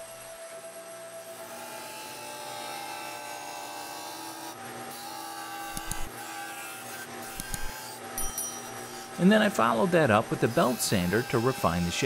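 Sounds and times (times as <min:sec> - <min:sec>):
disc sander grinding wood: 0:01.2 - 0:12.0.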